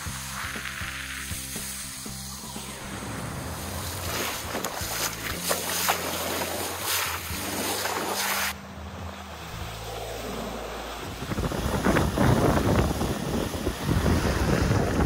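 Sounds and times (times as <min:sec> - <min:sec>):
bow wave splashing along hull: 0:00.0 - 0:15.0
wind buffeting microphone: 0:10.9 - 0:15.0.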